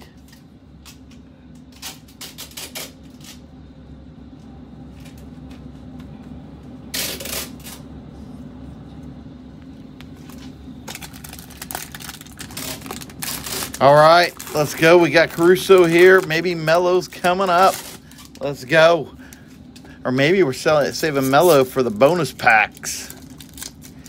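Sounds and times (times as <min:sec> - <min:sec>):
card pack crinkling: 0:10.3 - 0:18.8, 0:20.8 - 0:24.0.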